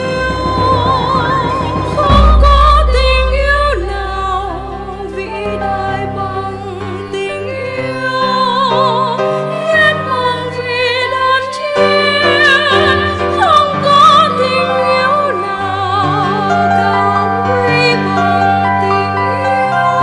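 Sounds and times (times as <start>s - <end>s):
sustained instrumental chords: 0.0s - 9.6s.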